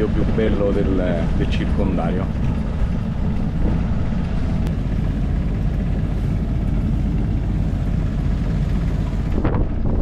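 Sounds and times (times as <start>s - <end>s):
sailboat low rumble: 0.0s - 10.0s
wind buffeting microphone: 0.0s - 10.0s.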